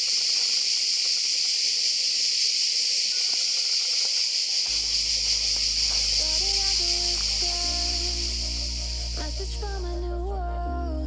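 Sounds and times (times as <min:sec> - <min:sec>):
cicadas chorus: 0:00.0 - 0:10.0
background music: 0:04.7 - 0:11.0.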